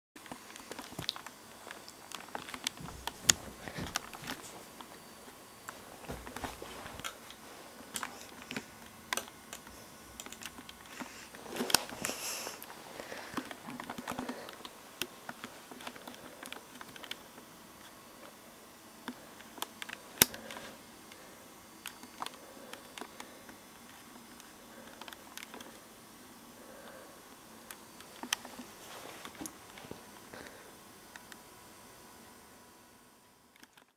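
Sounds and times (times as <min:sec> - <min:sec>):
small clicks and taps: 0:00.2 - 0:04.9.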